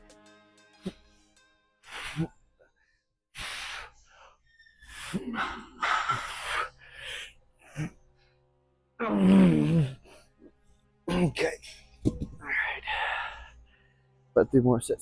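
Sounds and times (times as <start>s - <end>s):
man exhaling and breathing heavily: 1.8s - 2.4s, 3.3s - 8.2s.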